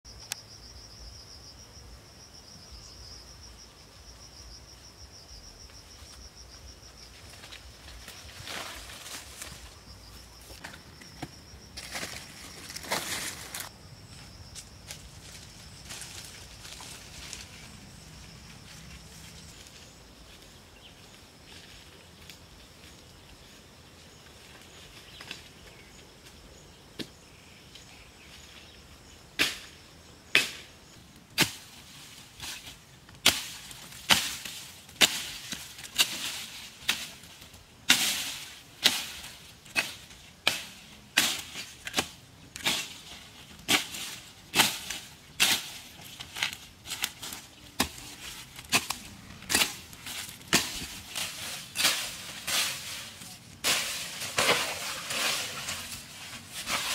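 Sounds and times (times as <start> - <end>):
faint outdoor background: 0.0 - 56.9
machete slashing grass: 53.6 - 55.9.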